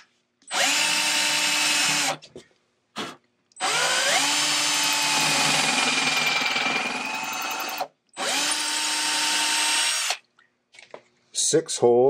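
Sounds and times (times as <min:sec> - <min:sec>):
cordless drill boring wood: 0:00.5 - 0:02.2, 0:03.6 - 0:10.2.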